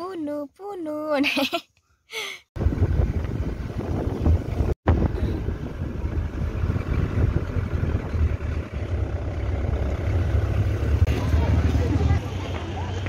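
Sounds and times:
engine and road rumble: 0:02.5 - 0:13.0
wind buffeting microphone: 0:02.6 - 0:09.1.

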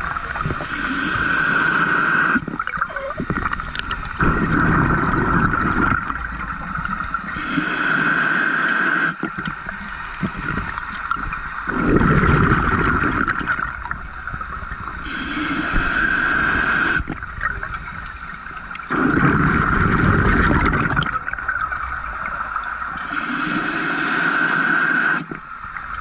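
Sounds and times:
exhaled bubbles gurgling: 0:00.0 - 0:26.0
hissing inhale through regulator: 0:00.6 - 0:02.5, 0:07.3 - 0:09.3, 0:14.9 - 0:17.2, 0:23.0 - 0:25.4.

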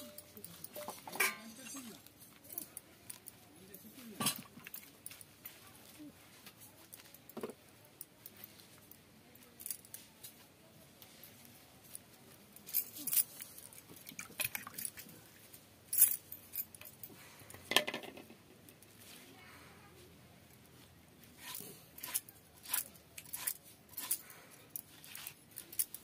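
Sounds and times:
bangles jingling: 0:00.0 - 0:03.9, 0:12.5 - 0:15.0, 0:15.9 - 0:17.1, 0:21.4 - 0:26.0.

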